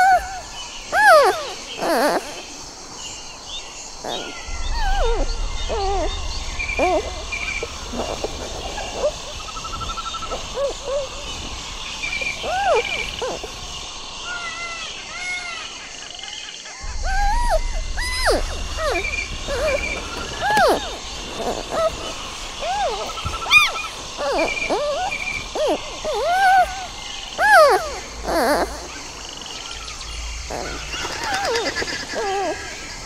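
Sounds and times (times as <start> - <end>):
squeaky animal calls: 4.0 - 11.2, 16.8 - 32.6
low rumble: 4.4 - 14.2, 16.8 - 24.2.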